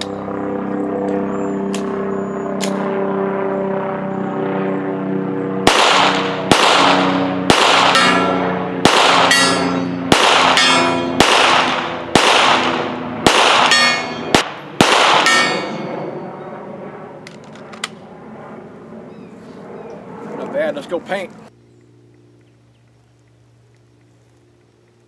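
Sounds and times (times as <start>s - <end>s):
steady background tones: 0.0s - 22.7s
pistol shots: 5.6s - 15.9s
bullet ringing on steel target: 7.8s - 11.2s, 13.4s - 14.4s, 15.2s - 16.0s.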